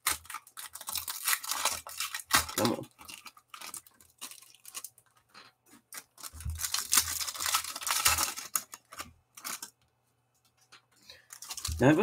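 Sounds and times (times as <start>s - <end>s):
foil pack tearing open: 0.0s - 4.9s, 5.9s - 9.7s, 11.2s - 12.0s
wrapper crinkling: 0.0s - 9.8s, 11.1s - 12.0s.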